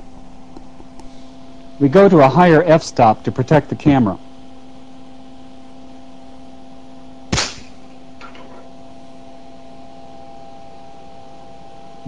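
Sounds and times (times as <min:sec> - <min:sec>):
steady hum: 0:00.0 - 0:12.0
loud sharp electrical crack: 0:07.3 - 0:08.0.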